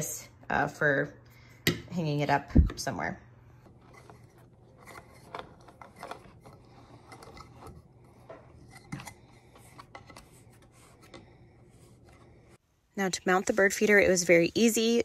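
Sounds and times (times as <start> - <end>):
plastic parts clicking and scraping: 3.7 - 12.4.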